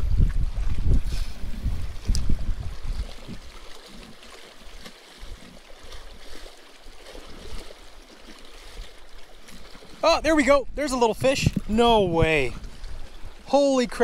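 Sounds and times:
wind buffeting microphone: 0.0s - 3.7s, 10.1s - 13.5s
waves lapping against rocks: 0.0s - 14.0s.

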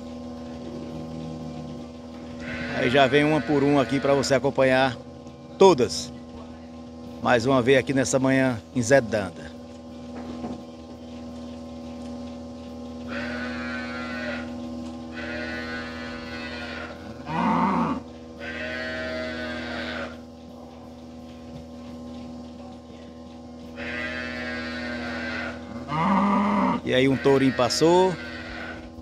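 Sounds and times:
steady hum: 0.0s - 29.0s
cow mooing: 0.6s - 4.4s, 13.1s - 20.3s, 23.8s - 29.0s
cattle bawling: 0.8s - 4.4s, 13.1s - 20.3s, 23.7s - 29.0s.

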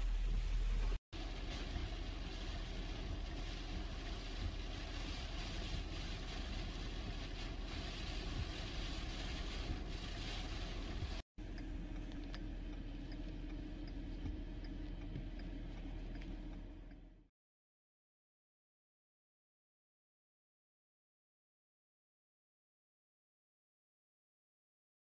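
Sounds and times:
wind rumble on microphone: 0.0s - 11.2s
driving rain: 0.0s - 16.6s.

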